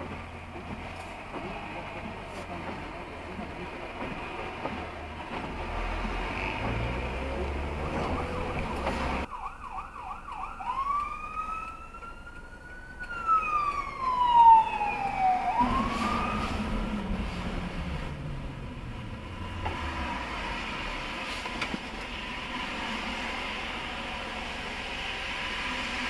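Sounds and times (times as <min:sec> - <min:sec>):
car road noise: 0:00.0 - 0:26.0
fire truck siren wailing: 0:05.8 - 0:21.2.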